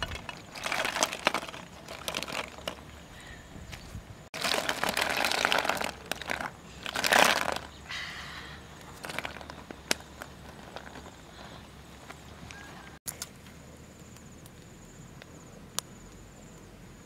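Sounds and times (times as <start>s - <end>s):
snail shells clattering: 0.0s - 2.9s, 4.4s - 7.8s, 8.9s - 11.3s.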